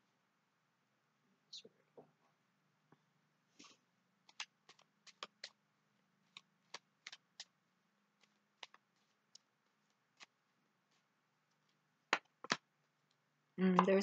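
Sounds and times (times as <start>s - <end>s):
cards being shuffled: 3.6s - 5.6s, 6.2s - 7.5s, 8.2s - 12.7s.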